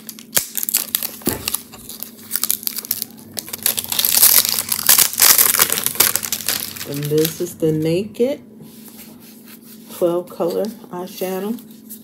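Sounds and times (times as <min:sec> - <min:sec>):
plastic wrapping crinkling and tearing: 0:00.0 - 0:07.7.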